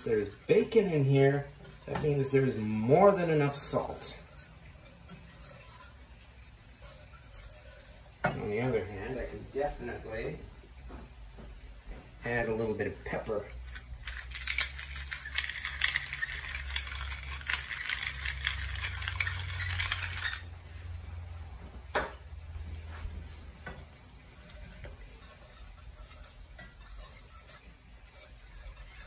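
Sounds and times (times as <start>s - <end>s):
whisk stirring in skillet: 0.0s - 9.6s, 12.5s - 20.6s, 22.8s - 29.0s
pepper mill grinding: 13.6s - 20.5s.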